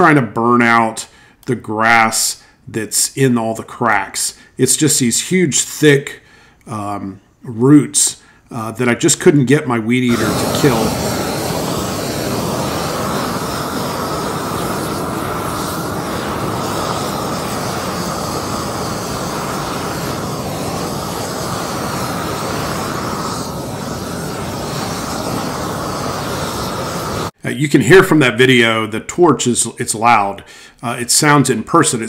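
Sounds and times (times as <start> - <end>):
propane torch jet rush: 10.0 - 27.4.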